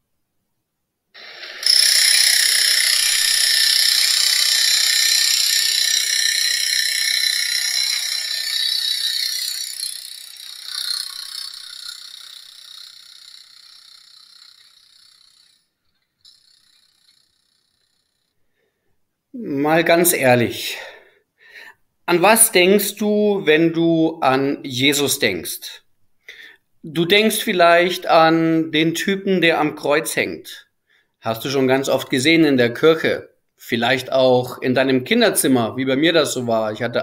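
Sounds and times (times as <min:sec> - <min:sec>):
machine rattling whir: 0:01.2 - 0:18.3.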